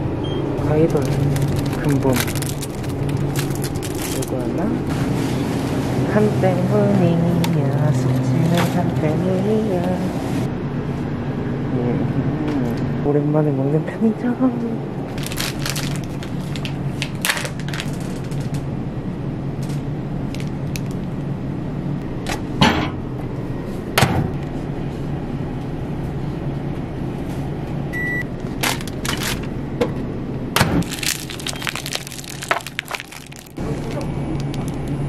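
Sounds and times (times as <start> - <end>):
steady low hum: 0.0 - 35.0
plastic packaging crackling: 0.6 - 4.7, 15.1 - 18.6, 20.3 - 21.1, 28.6 - 29.5, 30.8 - 35.0.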